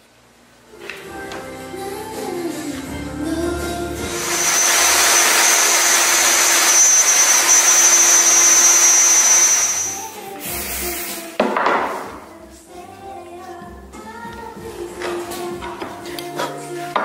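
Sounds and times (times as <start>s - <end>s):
background music: 0.7s - 6.1s, 10.0s - 17.0s
router cutting wood: 4.1s - 10.1s
loud burst of noise: 4.1s - 11.1s.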